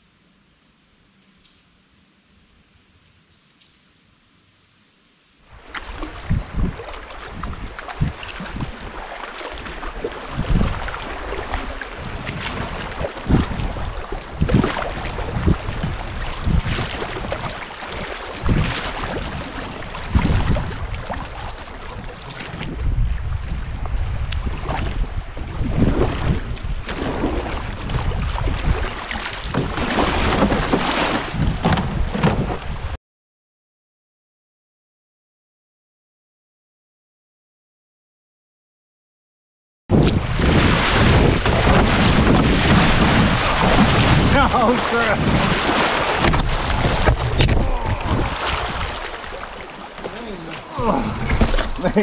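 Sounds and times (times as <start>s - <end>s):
water rushing over river riffle: 5.5s - 23.8s, 24.4s - 32.9s, 39.9s - 52.0s
paddle strokes splashing: 5.5s - 33.0s, 40.0s - 52.0s
wind buffeting microphone: 5.7s - 33.0s, 39.9s - 52.0s
river water rushing: 40.6s - 52.0s.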